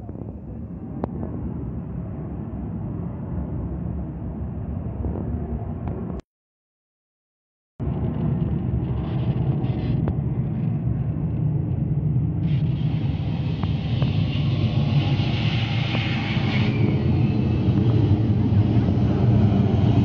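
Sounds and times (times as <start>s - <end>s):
jet engine rumble in cabin: 0.0s - 6.2s, 7.8s - 20.0s
hiss: 12.4s - 20.0s.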